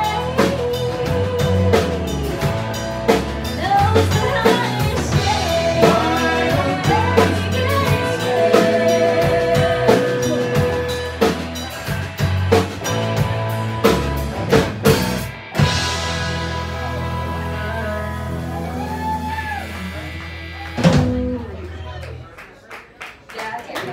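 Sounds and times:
bass guitar: 0.0 - 22.4
drum kit hits: 1.9 - 16.8.

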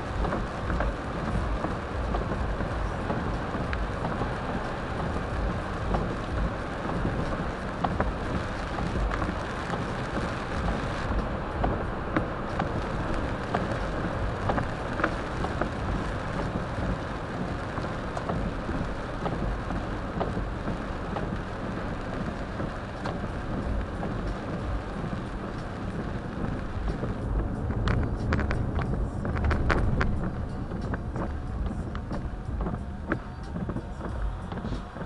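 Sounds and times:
rain hissing on car: 0.0 - 35.0
tyres rumbling on road: 0.0 - 35.0.

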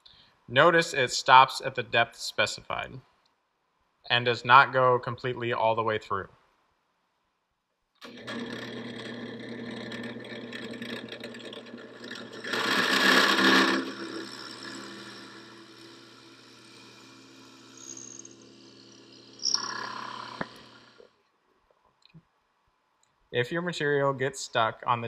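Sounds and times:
click: 3.2 - 3.4
drill bit boring into wood: 8.0 - 21.1
drill press motor hum: 8.0 - 21.2.

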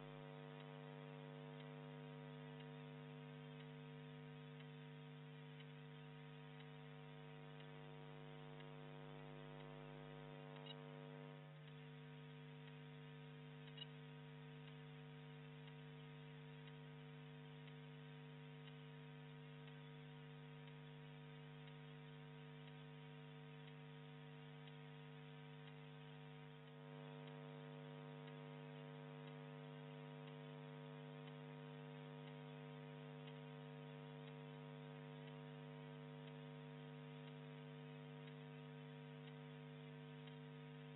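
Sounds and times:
electrical mains hum: 0.0 - 40.9
faint clicks: 2.4 - 18.0, 38.1 - 40.5.

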